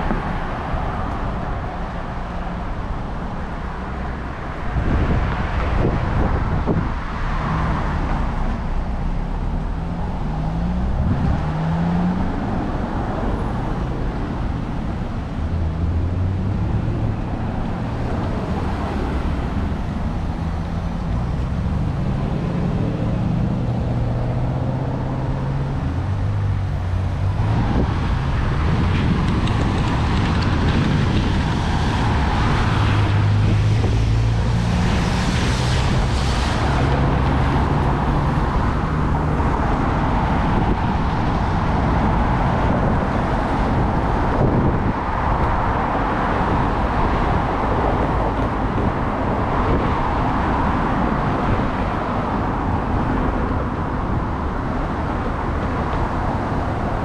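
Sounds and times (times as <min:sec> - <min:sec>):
car engines humming: 0:00.0 - 0:57.0
tyres on the road: 0:00.0 - 0:57.0.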